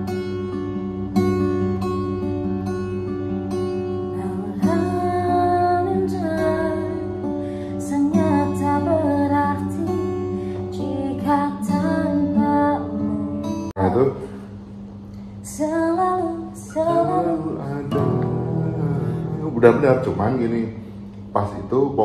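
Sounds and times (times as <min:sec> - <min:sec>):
acoustic guitar strumming: 0:00.0 - 0:22.0
woman singing slow melody: 0:04.0 - 0:14.4, 0:15.4 - 0:19.4.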